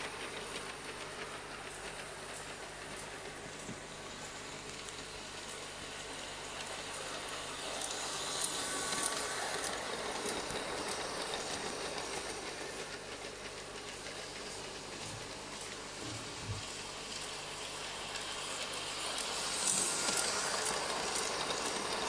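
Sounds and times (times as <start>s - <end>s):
model train rolling on track: 0.0s - 22.0s
wheels clicking over rail joints: 6.5s - 22.0s.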